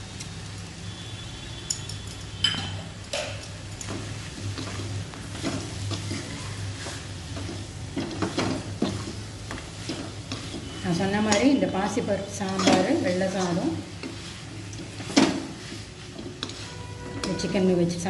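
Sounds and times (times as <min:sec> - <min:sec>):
food sizzling: 0:00.0 - 0:18.0
spoon scraping metal pan: 0:12.3 - 0:17.8.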